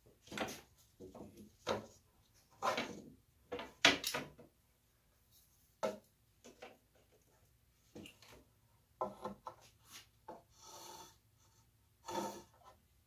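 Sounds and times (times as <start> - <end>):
pencil scraping across board: 9.0 - 12.8.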